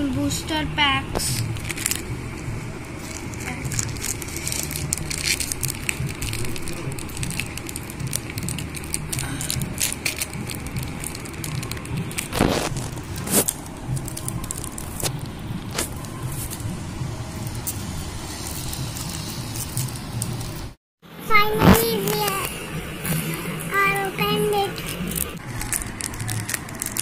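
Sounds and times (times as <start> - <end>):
steady low rumble: 0.0 - 27.0
foil wrapper crinkling and tearing: 1.2 - 16.7, 17.4 - 20.7, 24.8 - 27.0.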